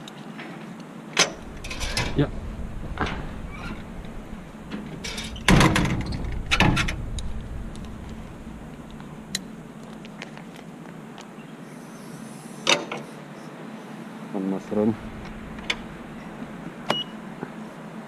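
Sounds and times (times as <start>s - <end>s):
metal clanking and rattling: 1.2s - 10.6s, 14.8s - 17.4s.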